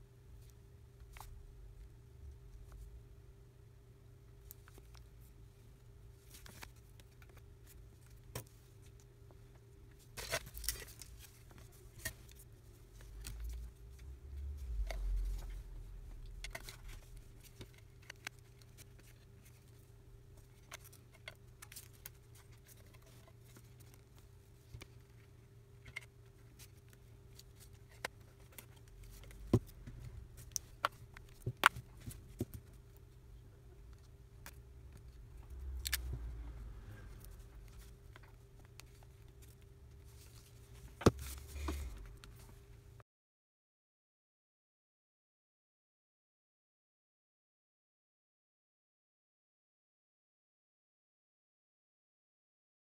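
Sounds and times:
steady low hum: 0.0 - 43.0
low rumble of handling: 4.3 - 43.0.

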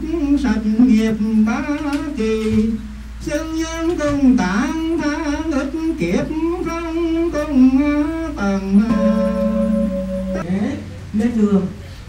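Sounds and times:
slow melodic chanting: 0.0 - 10.4.

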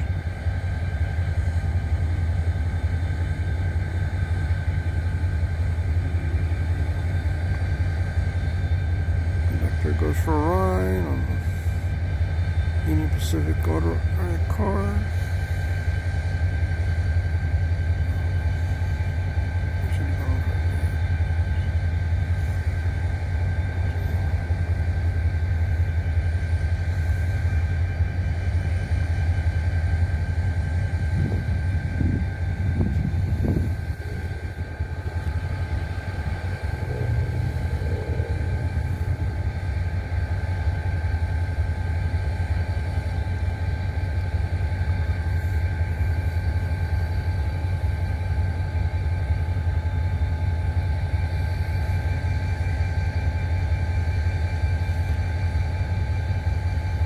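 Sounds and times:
diesel locomotive rumble: 0.0 - 57.0.

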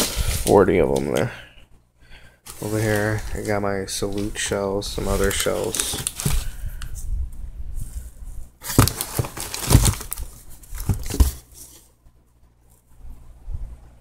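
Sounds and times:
paper wrappers rustling: 2.5 - 6.9, 8.6 - 11.9
cardboard tubes knocking: 8.7 - 10.2, 10.8 - 11.5.

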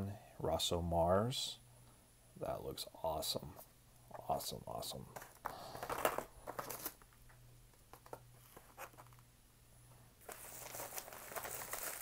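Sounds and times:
faint low hum: 0.0 - 12.0
bubble wrap rustling and crinkling: 5.2 - 7.1, 10.2 - 12.0.

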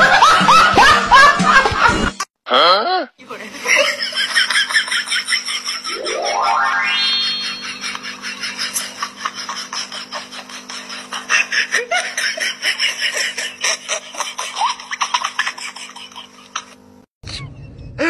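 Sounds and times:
people laughing: 0.0 - 2.2, 3.5 - 17.6
low hum: 5.9 - 9.3.

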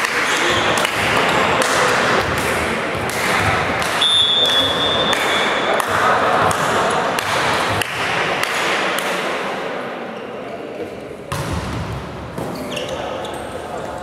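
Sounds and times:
volleyball hits: 0.0 - 9.3, 11.3 - 12.6
voices echoing in a hall: 0.0 - 14.0
referee's whistle blast: 4.0 - 5.5.

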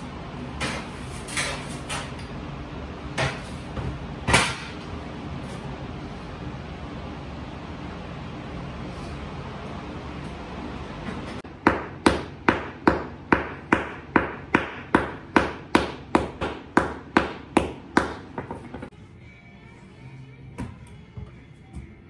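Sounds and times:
hammer tapping concrete floor: 11.7 - 18.9.

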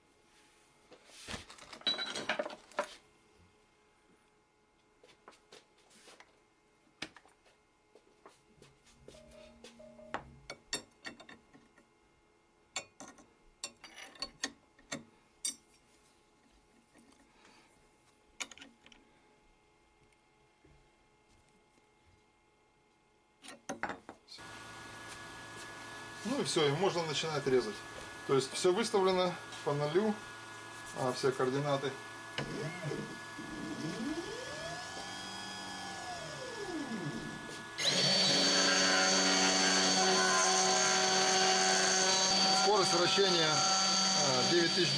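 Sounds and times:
router spinning: 24.5 - 44.9
stepper motors whining: 24.5 - 44.9.

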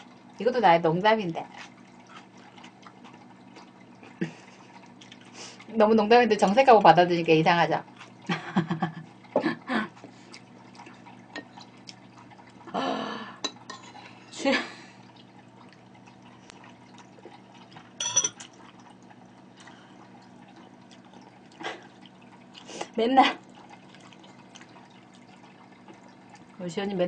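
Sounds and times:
low steady hum: 0.0 - 27.0
metal spoon against ceramic bowl: 18.0 - 18.4.

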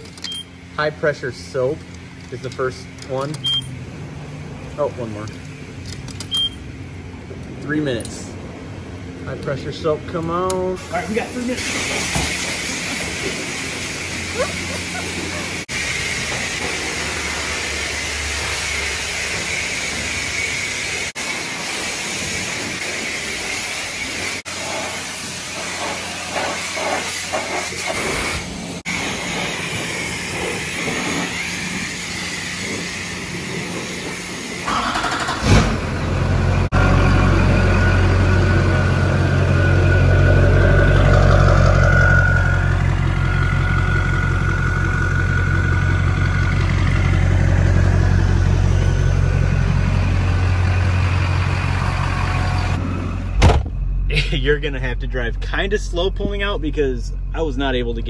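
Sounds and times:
pressure washer spraying: 10.8 - 35.8
diesel engine droning: 28.4 - 58.0.

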